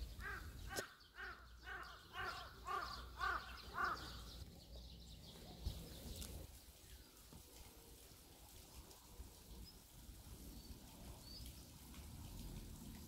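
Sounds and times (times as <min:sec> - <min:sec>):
crow cawing: 0:00.2 - 0:04.2.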